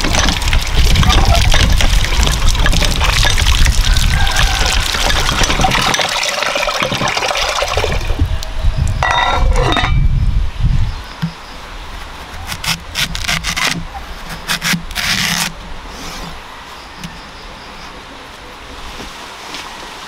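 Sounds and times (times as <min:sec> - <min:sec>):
water gushing from hand pump: 0:00.0 - 0:08.2
water pouring into metal pail: 0:00.0 - 0:08.2.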